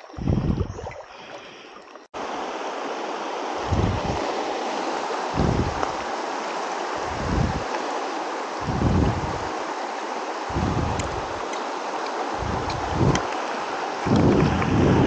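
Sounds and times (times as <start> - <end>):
rocky stream rushing: 2.1 - 15.0
legs wading and splashing: 3.6 - 15.0.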